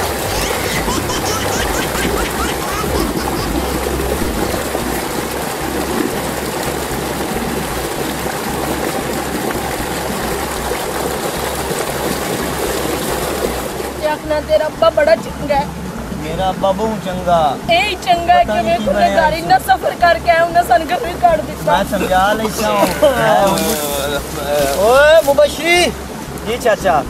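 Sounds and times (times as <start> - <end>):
water rushing in channel: 0.0 - 27.0
low rumble: 3.0 - 14.0.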